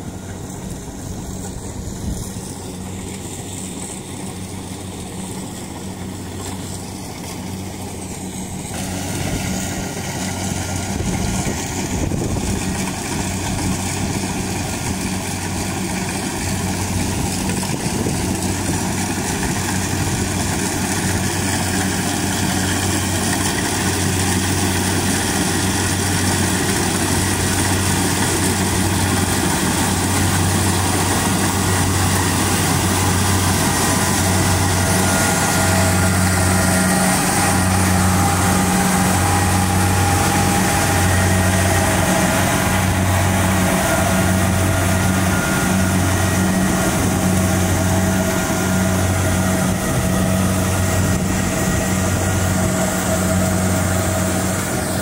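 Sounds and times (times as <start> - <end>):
combine harvester engine and machinery: 0.0 - 55.0.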